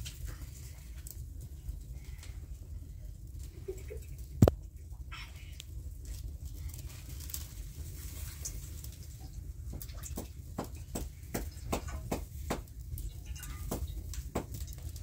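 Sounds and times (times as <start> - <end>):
steady low rumble: 0.0 - 7.9.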